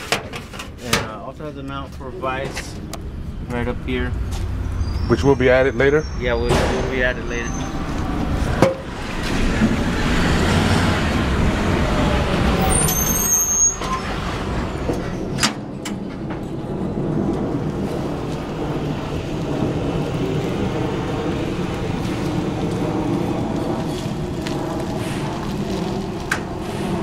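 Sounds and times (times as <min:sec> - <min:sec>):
electric cart running: 0:07.6 - 0:27.0
brief high squeal: 0:12.6 - 0:14.2.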